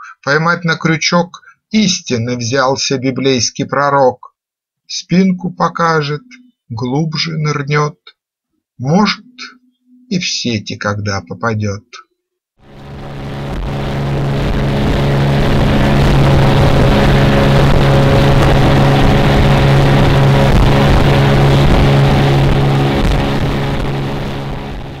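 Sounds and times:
motorboat engine running: 0:12.6 - 0:25.0
water and wind rushing: 0:12.6 - 0:25.0.

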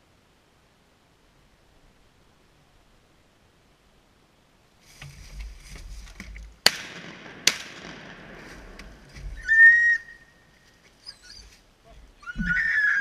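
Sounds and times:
shotgun shots echoing: 0:06.6 - 0:09.3.

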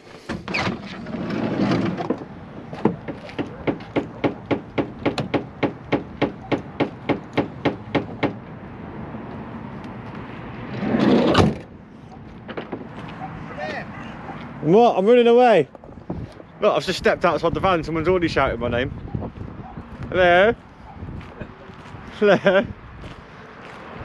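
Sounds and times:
footsteps: 0:12.0 - 0:14.6, 0:19.2 - 0:24.0.

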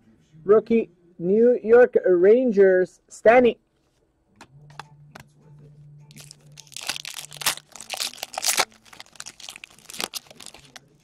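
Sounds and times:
foil wrapper crinkling and tearing: 0:06.1 - 0:11.0.

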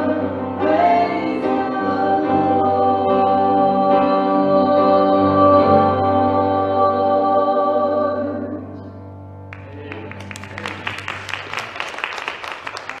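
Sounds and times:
audience clapping: 0:09.5 - 0:13.0.

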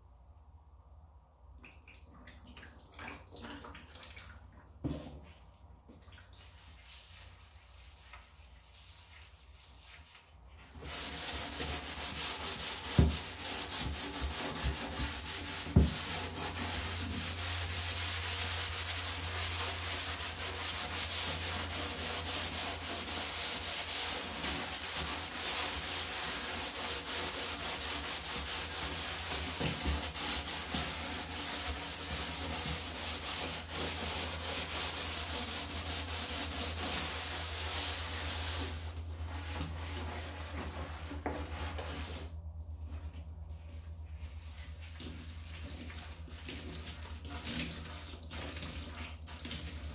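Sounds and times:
sponge scrubbing plastic bin: 0:04.8 - 0:49.9.

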